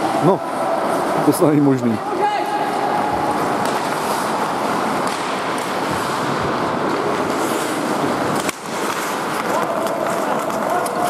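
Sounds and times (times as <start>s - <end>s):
skate blades scraping ice: 2.1s - 11.0s
hockey stick and puck clacks: 2.4s - 11.0s.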